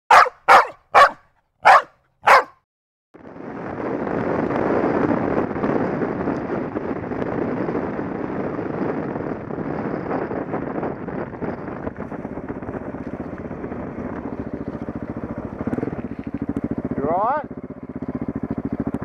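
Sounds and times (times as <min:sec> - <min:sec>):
dirt bike engine: 0:00.1 - 0:02.6
dog barking: 0:00.1 - 0:02.6
wind rush: 0:03.2 - 0:16.1.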